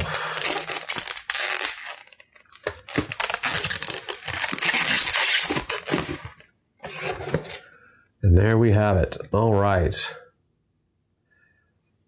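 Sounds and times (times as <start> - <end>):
plastic wrapping crinkling: 0.0 - 7.2.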